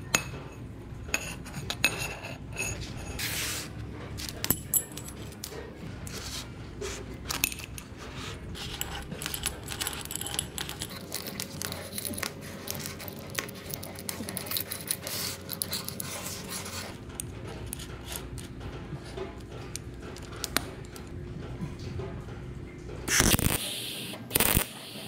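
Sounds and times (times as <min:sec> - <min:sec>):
metal taps and scrapes: 0:00.1 - 0:03.2
metal chain clinking and rattling: 0:04.2 - 0:05.7, 0:08.6 - 0:16.0.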